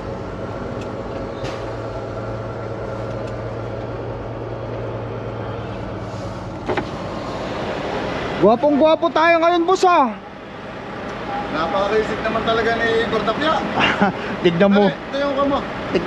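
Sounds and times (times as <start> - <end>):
diesel truck engine running: 0.0 - 16.0.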